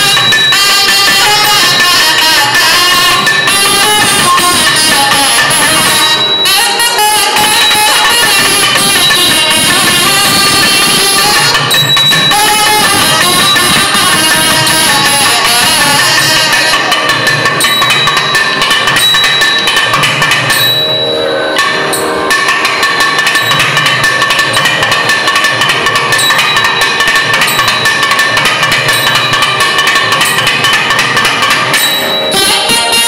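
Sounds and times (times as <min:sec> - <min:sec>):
fast drumming: 0:00.0 - 0:20.8, 0:21.6 - 0:33.0
double-reed wind instruments melody: 0:31.9 - 0:33.0.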